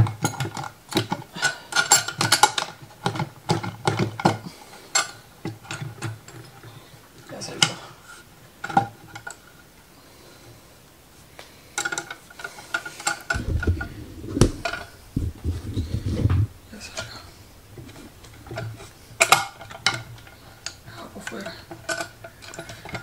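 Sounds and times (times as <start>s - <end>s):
metal tools clinking: 1.4s - 3.2s, 16.9s - 23.0s
low handling thumps: 13.3s - 18.5s.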